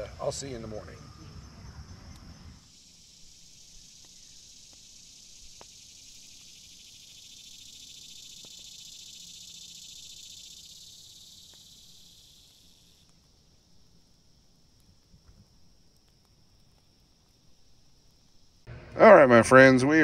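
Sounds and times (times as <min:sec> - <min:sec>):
insect chorus buzzing: 0:00.0 - 0:20.0
campfire pops: 0:02.1 - 0:02.4, 0:03.7 - 0:06.7, 0:08.3 - 0:08.7, 0:11.4 - 0:18.7.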